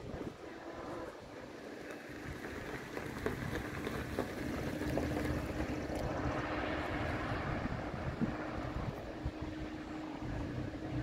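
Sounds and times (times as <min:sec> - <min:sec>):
truck engine humming: 0:00.0 - 0:11.0.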